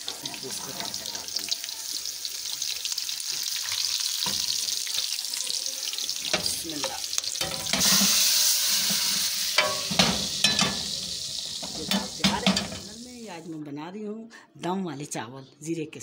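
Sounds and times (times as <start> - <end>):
hot oil poured sizzling burst: 0.0 - 13.5
spices sizzling in hot oil: 0.0 - 13.5.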